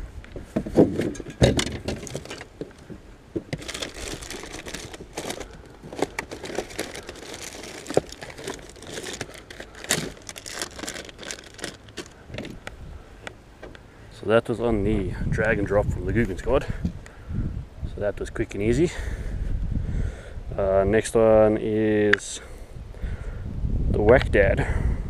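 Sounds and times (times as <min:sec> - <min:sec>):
crinkling and rustling: 0:00.2 - 0:13.8.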